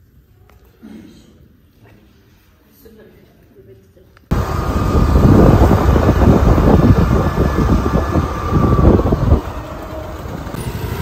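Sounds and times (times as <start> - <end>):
wind buffeting on microphone: 4.3 - 10.6.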